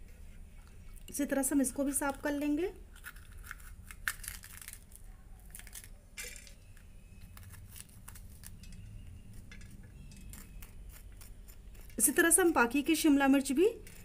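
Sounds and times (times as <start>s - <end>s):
knife scraping pepper: 2.9s - 4.7s, 6.7s - 14.0s.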